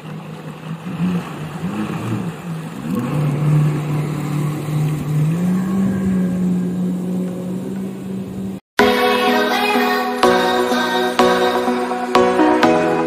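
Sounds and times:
jet ski engine revving: 0:00.0 - 0:08.6.

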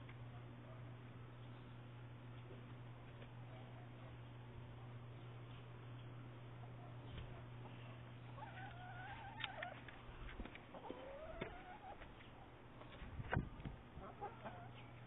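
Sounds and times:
hen calling: 0:08.3 - 0:09.8.

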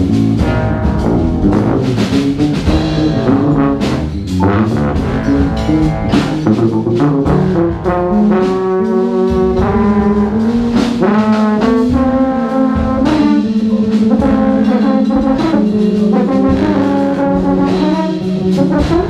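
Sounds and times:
brass and saxophone chords: 0:00.0 - 0:19.0
drum kit hits: 0:00.0 - 0:19.0.

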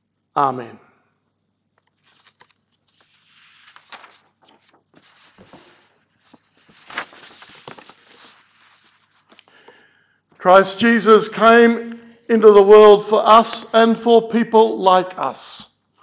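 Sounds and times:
paper rustling: 0:01.8 - 0:09.8.

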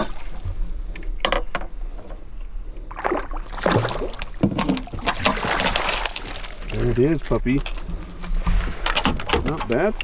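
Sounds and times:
water splashing beside boat: 0:00.0 - 0:01.2, 0:02.8 - 0:10.0.

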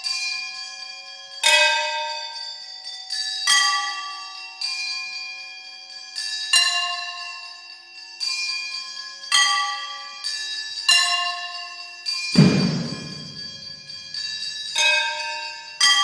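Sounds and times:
loud deep thud: 0:12.4 - 0:13.7
ringing metal percussion hits: 0:12.4 - 0:14.2.

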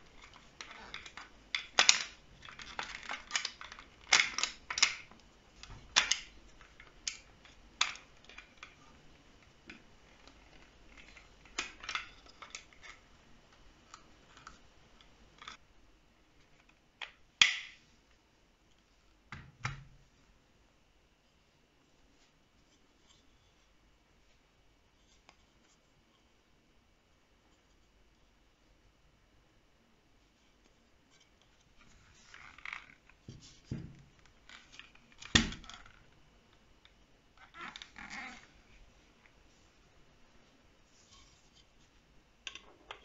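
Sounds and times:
parts clicking and tapping: 0:00.0 - 0:08.8.

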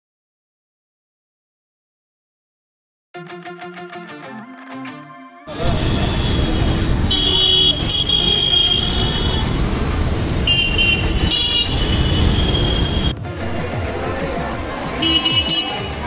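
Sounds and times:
horns honking: 0:05.5 - 0:13.9, 0:14.7 - 0:16.0
busy street traffic: 0:05.5 - 0:16.0.

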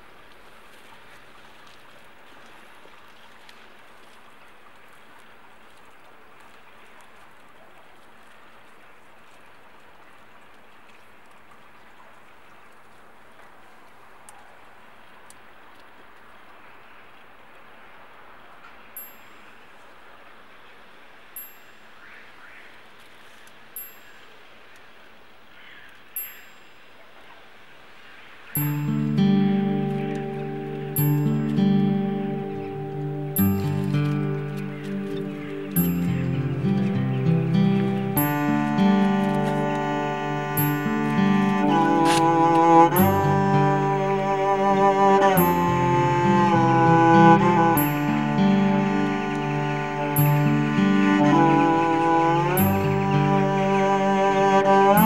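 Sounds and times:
steady rain hiss: 0:00.0 - 0:07.4, 0:12.3 - 0:55.0
faint raindrop ticks: 0:00.0 - 0:20.3, 0:21.3 - 0:27.1, 0:28.5 - 0:43.3
high bell-like chime: 0:19.0 - 0:19.4, 0:21.4 - 0:21.9, 0:28.6 - 0:29.2, 0:30.9 - 0:31.6, 0:33.4 - 0:34.6, 0:35.7 - 0:39.5, 0:40.6 - 0:42.1, 0:42.9 - 0:44.1, 0:45.4 - 0:49.0, 0:50.0 - 0:51.4, 0:52.5 - 0:53.2.

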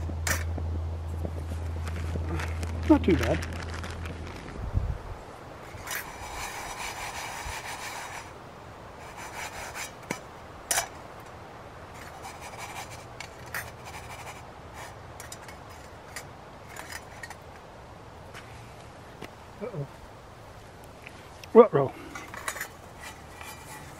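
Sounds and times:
utensil scraping a frying pan: 0:05.6 - 0:08.4, 0:09.0 - 0:11.0, 0:11.9 - 0:17.4, 0:22.2 - 0:23.9.

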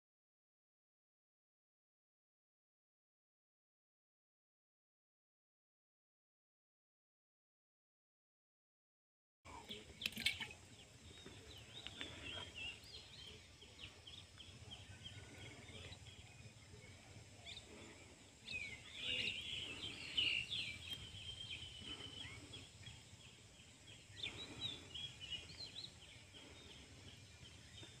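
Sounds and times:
small birds chirping: 0:09.5 - 0:28.0.

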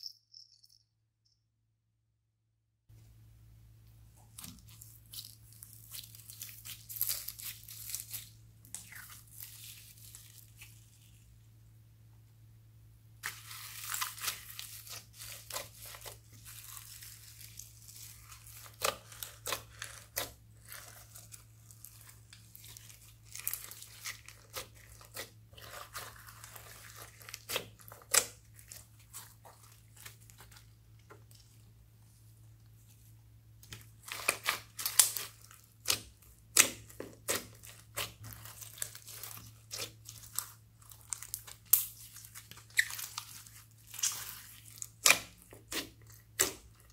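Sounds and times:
slime squishing and popping: 0:04.3 - 0:10.8, 0:13.2 - 0:30.6, 0:33.6 - 0:46.9.

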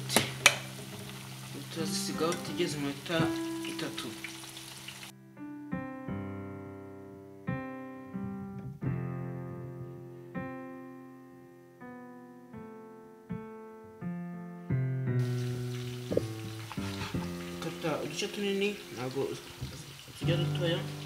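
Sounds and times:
frying oil sizzling: 0:00.0 - 0:05.1, 0:15.2 - 0:21.0
slow piano music: 0:00.0 - 0:21.0.

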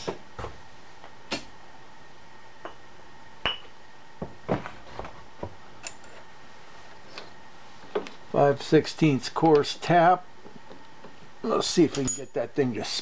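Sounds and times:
steel tools clinking on metal: 0:11.9 - 0:12.4.

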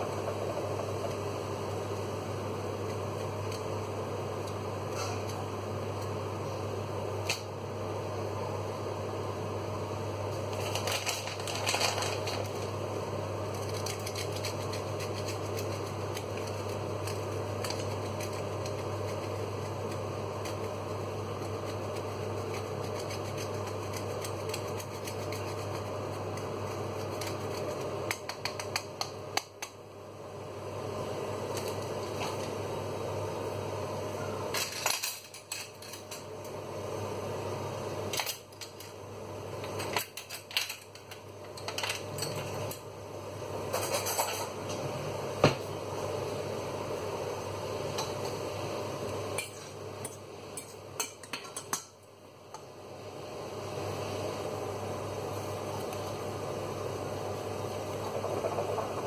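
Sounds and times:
appliance fan hum: 0:00.0 - 0:59.0
grater grating cheese: 0:13.4 - 0:29.1.

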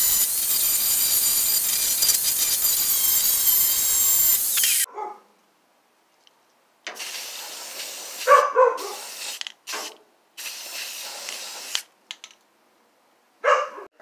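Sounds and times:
aerosol can spraying: 0:00.0 - 0:04.9, 0:06.9 - 0:11.9
dog barking: 0:04.9 - 0:05.3, 0:08.2 - 0:09.1, 0:13.4 - 0:13.9.

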